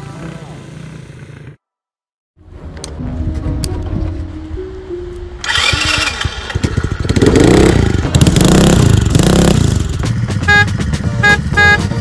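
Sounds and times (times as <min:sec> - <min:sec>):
engine revving: 0:05.4 - 0:12.0
car horn beeps: 0:10.4 - 0:12.0.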